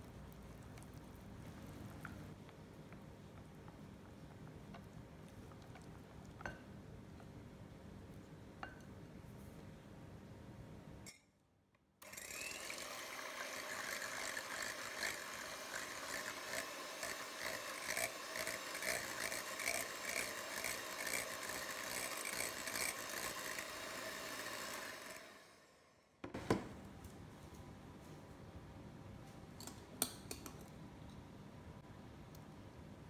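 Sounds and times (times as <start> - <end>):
electric hand mixer whirring: 12.0 - 25.9.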